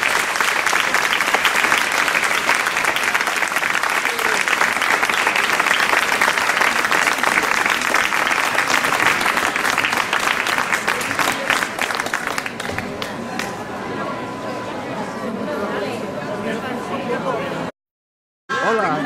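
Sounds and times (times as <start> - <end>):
crowd applauding: 0.0 - 13.7.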